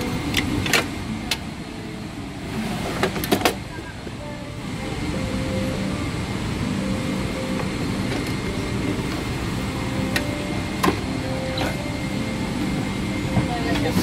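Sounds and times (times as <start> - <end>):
airliner cabin hum: 0.0 - 14.0
sharp clicks of seat compartments: 0.2 - 1.5, 2.8 - 3.6.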